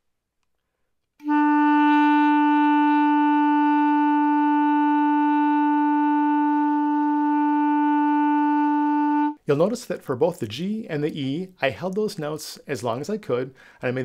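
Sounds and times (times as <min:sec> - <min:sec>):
clarinet long note: 0:01.2 - 0:09.4.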